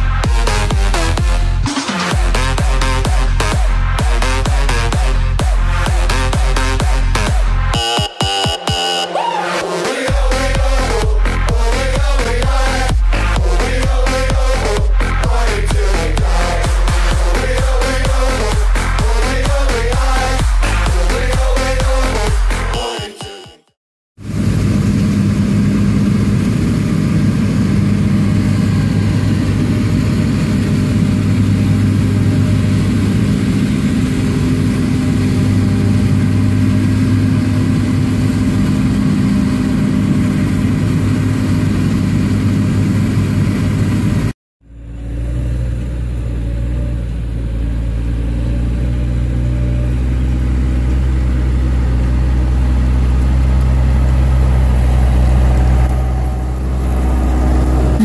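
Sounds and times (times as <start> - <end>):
tractor diesel engine running: 0.0 - 7.8, 10.1 - 22.9, 24.2 - 58.0
combine harvester running: 24.2 - 58.0.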